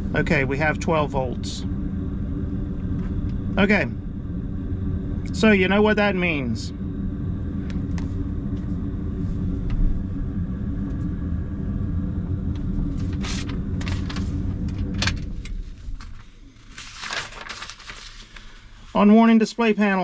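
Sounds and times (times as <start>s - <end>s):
low drone inside a vehicle cab: 0.0s - 20.0s
paper rustling: 13.0s - 15.1s, 15.9s - 18.7s.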